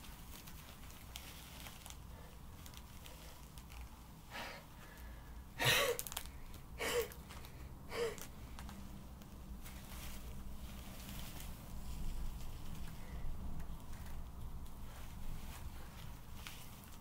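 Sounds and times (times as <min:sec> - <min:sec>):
faux fur rustling: 0:00.0 - 0:07.6, 0:08.2 - 0:17.0
person huffing heavily: 0:05.6 - 0:06.1, 0:06.8 - 0:07.2, 0:07.9 - 0:08.2.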